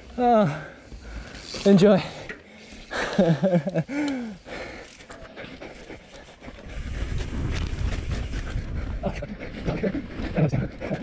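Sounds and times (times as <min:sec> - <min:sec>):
hard breathing: 0:03.8 - 0:11.0.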